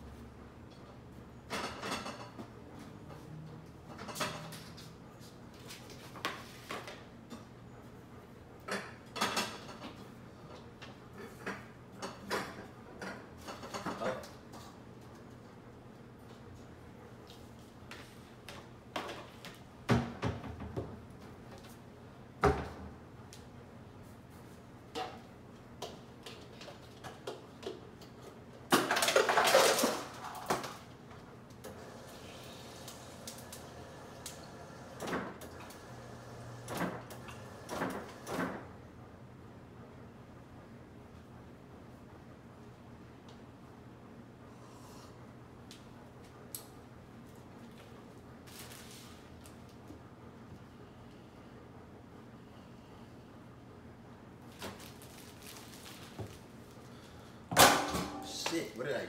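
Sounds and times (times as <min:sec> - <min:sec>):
containers clattering and rattling: 0:28.7 - 0:30.8.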